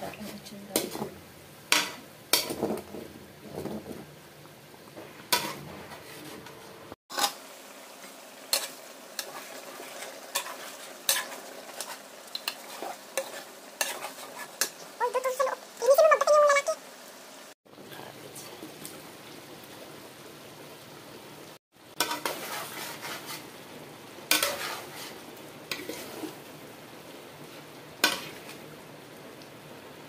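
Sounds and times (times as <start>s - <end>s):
spatula scraping a pan: 0.0s - 4.1s, 5.0s - 7.4s, 8.0s - 15.0s, 21.9s - 23.6s, 24.3s - 26.5s, 27.4s - 28.7s
sauce simmering hiss: 0.0s - 30.0s.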